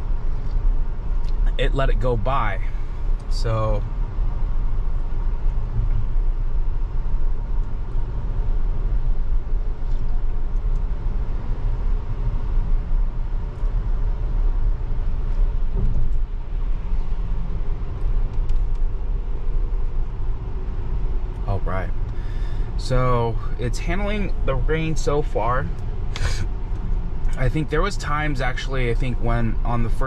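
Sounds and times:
low cabin road rumble: 0.0 - 30.0.

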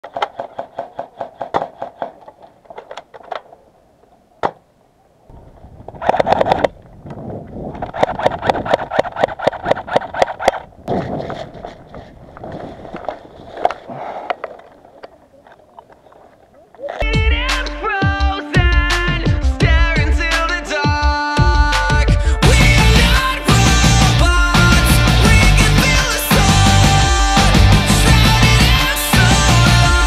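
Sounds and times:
airsoft guns clacking: 0.0 - 3.7, 5.9 - 6.8, 7.7 - 16.9.

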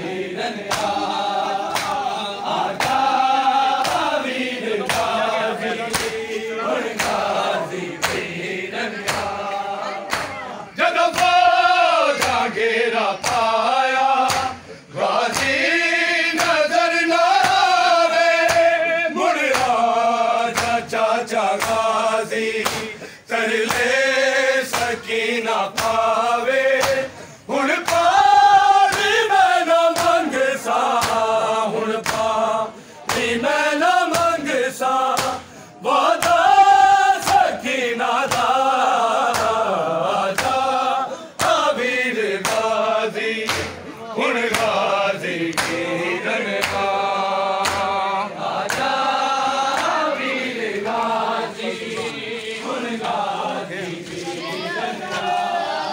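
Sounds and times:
men chanting in unison: 0.0 - 55.9
hands slapping chests: 0.6 - 8.4, 9.0 - 9.5, 10.1 - 10.4, 11.1 - 12.5, 13.2 - 14.6, 15.2 - 15.7, 16.3 - 16.7, 17.4 - 17.7, 18.4 - 18.8, 19.4 - 22.0, 22.6 - 24.0, 24.6 - 25.1, 25.7 - 29.3, 29.9 - 31.4, 32.0 - 32.4, 33.0 - 33.4, 34.0 - 36.6, 37.2 - 37.6, 38.2 - 40.8, 41.4 - 43.8, 44.4 - 48.0, 48.6 - 51.2.

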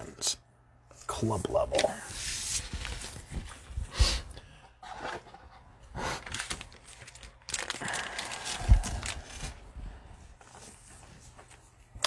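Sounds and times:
plastic sleeves crinkling: 6.2 - 9.7.

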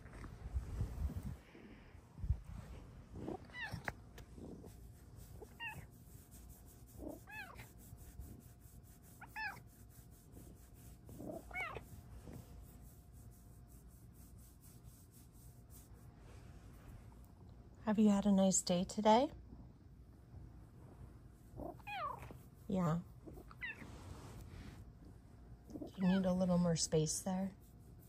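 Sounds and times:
cat meowing: 3.5 - 4.0, 7.2 - 7.6, 11.4 - 11.8, 21.7 - 22.3.

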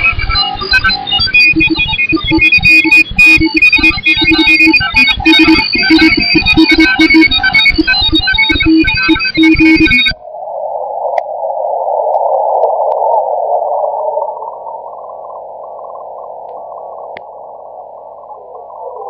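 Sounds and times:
broadcast audio: 0.0 - 19.0
shortwave radio static hiss: 10.2 - 19.0.

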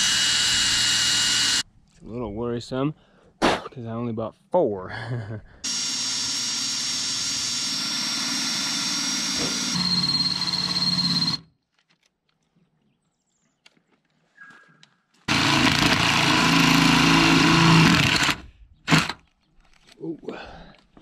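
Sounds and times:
cordless drill boring through metal: 0.0 - 1.6, 5.6 - 11.5, 15.3 - 19.2.

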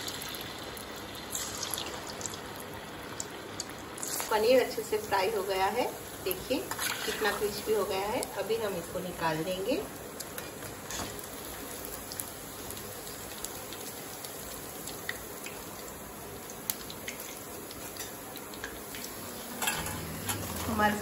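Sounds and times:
oil sizzling deep-frying: 0.0 - 21.0
small pops and crackles: 11.9 - 19.2.

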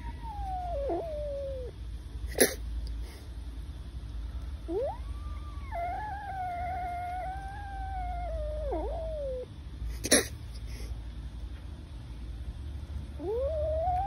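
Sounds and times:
kitten meowing: 4.7 - 9.5, 13.2 - 14.0.

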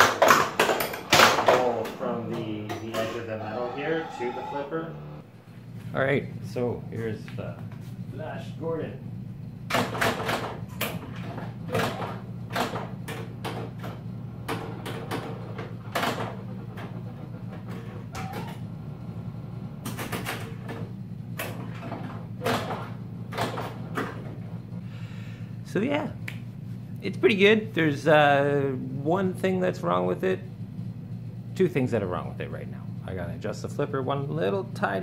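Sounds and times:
pinball flippers and solenoids clacking: 0.0 - 5.2, 9.7 - 18.7, 19.8 - 24.8
steady low hum: 0.9 - 35.0.

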